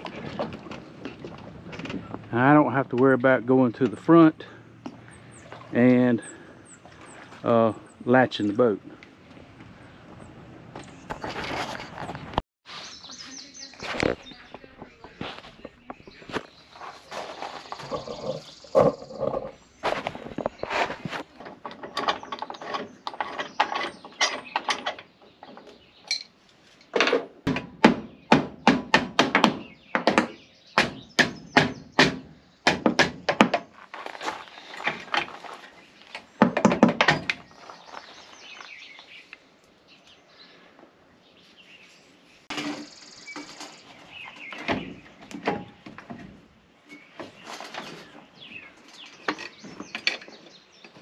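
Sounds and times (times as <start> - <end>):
metal knocks: 26.9 - 33.7, 36.2 - 37.5.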